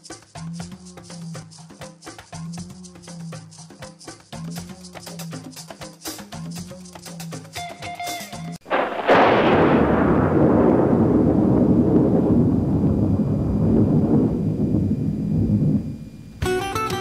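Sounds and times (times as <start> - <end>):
light percussive music: 0.0 - 8.6, 16.4 - 17.0
deep boom with low rumble: 8.7 - 16.1.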